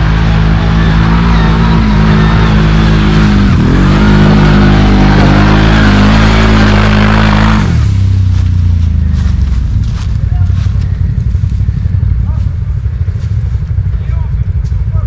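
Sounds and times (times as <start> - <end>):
atv engine under heavy throttle: 0.0 - 15.0.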